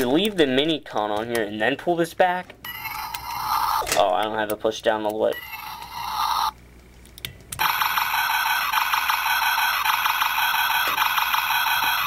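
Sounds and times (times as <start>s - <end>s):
toy gun-firing sound effect: 7.6s - 12.0s.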